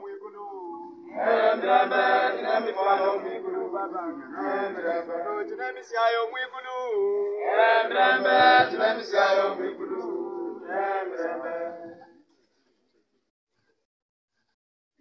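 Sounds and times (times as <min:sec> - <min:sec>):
church choir singing a hymn: 0:01.1 - 0:05.6, 0:07.3 - 0:12.1.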